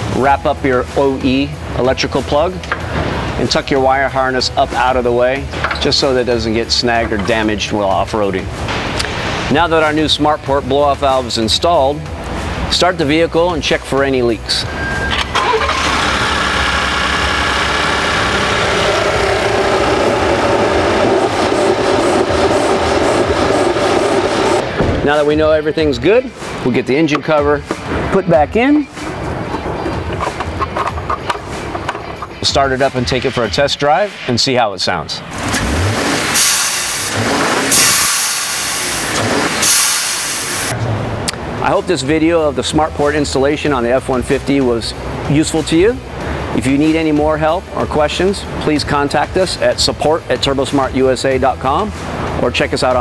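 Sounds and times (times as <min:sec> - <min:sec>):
car engine idling: 0:14.8 - 0:24.8
blow-off valve hissing: 0:35.5 - 0:40.7.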